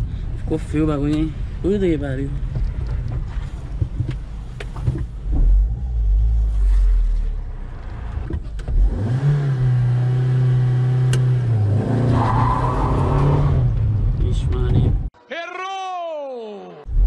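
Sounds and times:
low road rumble: 0.0 - 15.2
car engine accelerating: 5.3 - 15.0.

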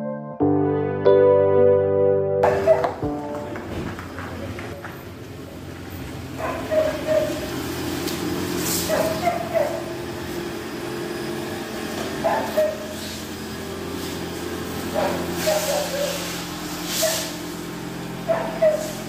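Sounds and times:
dog barking: 2.4 - 3.0, 6.4 - 7.5, 8.8 - 9.9, 12.2 - 13.0, 14.9 - 16.3, 16.9 - 17.4, 18.2 - 19.0.

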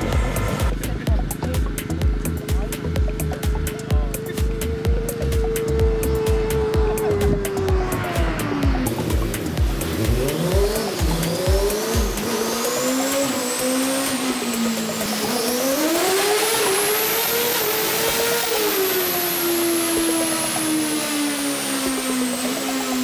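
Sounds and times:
race car engine revving: 0.0 - 23.0
low thumps: 0.1 - 13.1.

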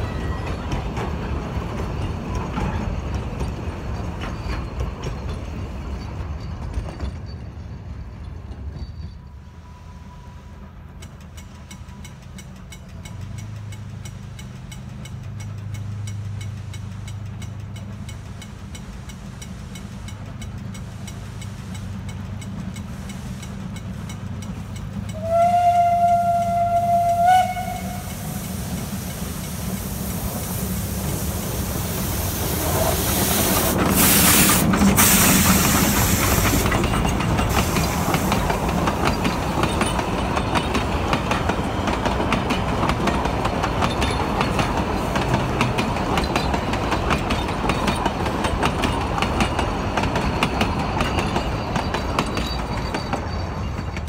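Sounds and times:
train wheels clacking on rail: 0.0 - 9.2, 10.8 - 54.0
steam locomotive passing: 0.0 - 54.0
steam locomotive whistle: 25.1 - 29.2.

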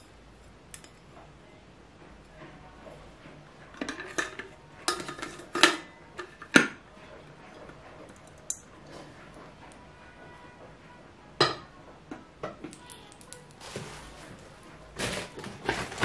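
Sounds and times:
metal infuser clinking on glass: 0.0 - 1.2, 7.6 - 9.0.

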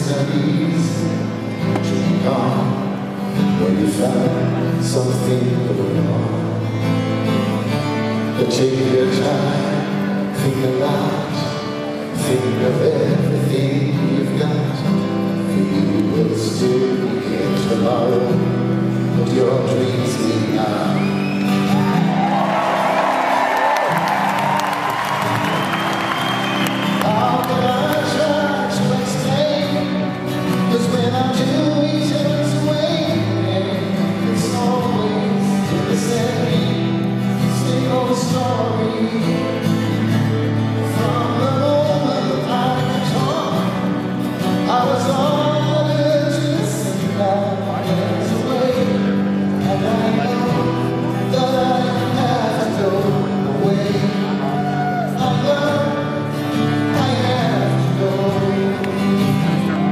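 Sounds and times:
man singing into a microphone: 0.0 - 21.9, 26.8 - 59.9
band playing: 20.4 - 36.8.

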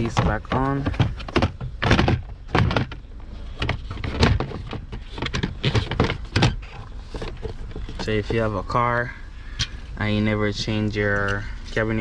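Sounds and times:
plastic panel knocking and rattling: 0.0 - 8.4.

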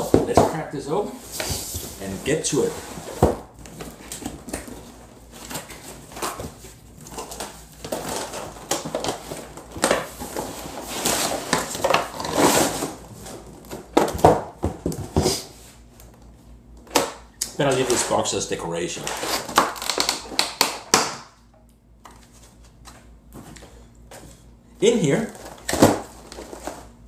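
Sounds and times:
cardboard sliding and scraping: 0.0 - 4.2.

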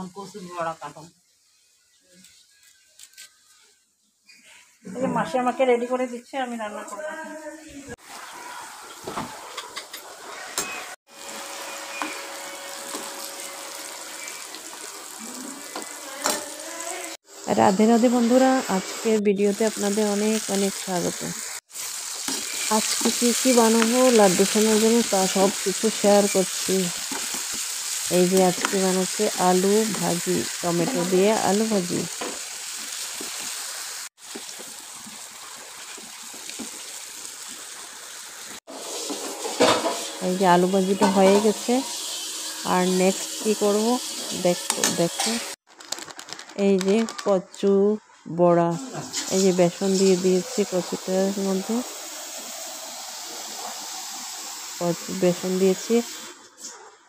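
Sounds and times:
potato sticks frying in oil: 11.1 - 45.6, 48.8 - 56.3.

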